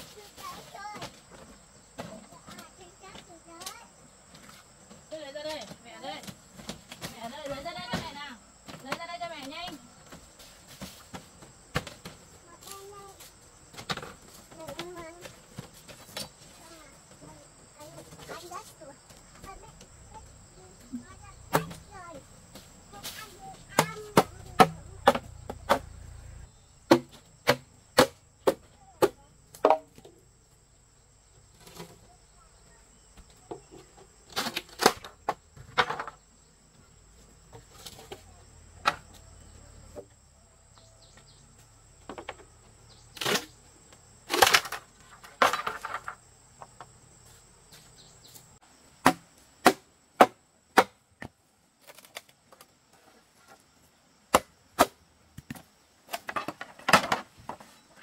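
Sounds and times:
tool chopping bamboo poles: 0:21.5 - 0:21.8, 0:23.1 - 0:26.0, 0:26.9 - 0:30.1, 0:49.0 - 0:52.2, 0:54.3 - 0:57.2.

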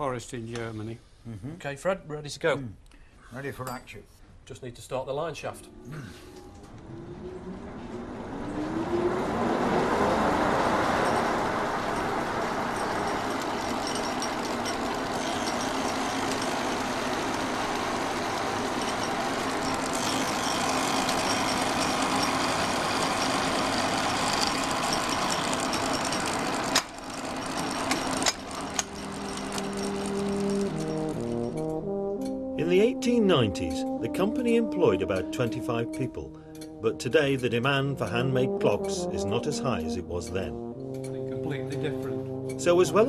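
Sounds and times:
line shaft whine: 0:05.5 - 0:32.9
belts and gearing clatter: 0:12.0 - 0:31.8.

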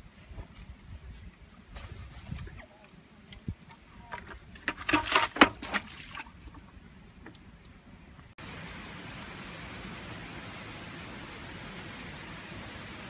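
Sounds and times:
steady hiss: 0:08.4 - 0:13.0.

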